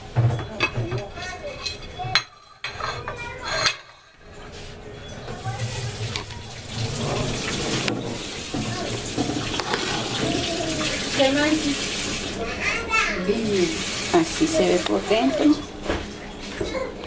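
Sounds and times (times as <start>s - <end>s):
running water: 5.2s - 15.8s.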